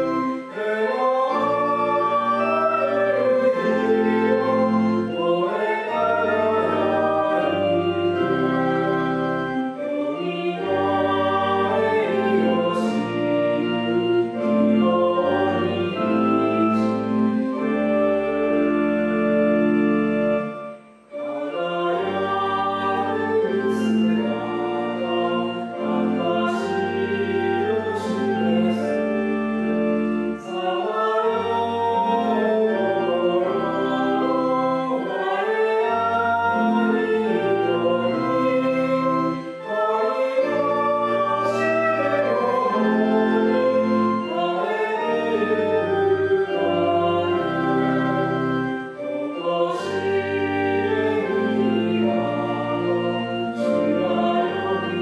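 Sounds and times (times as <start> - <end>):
hymn singing: 0.0 - 55.0
organ accompaniment: 0.0 - 55.0.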